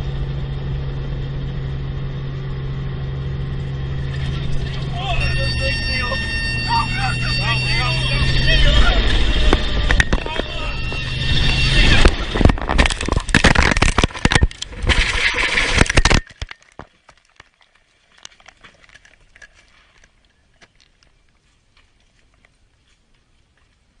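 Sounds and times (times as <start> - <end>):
helicopter crashing through trees: 0.0 - 16.5.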